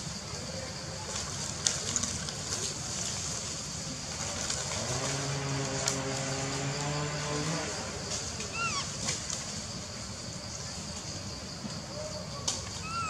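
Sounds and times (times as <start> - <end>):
low motor drone: 3.8 - 10.2.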